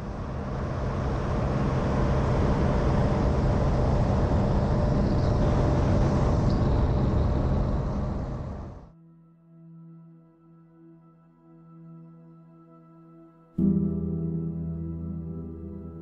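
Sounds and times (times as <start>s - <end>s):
ultralight engine running: 0.0s - 8.9s.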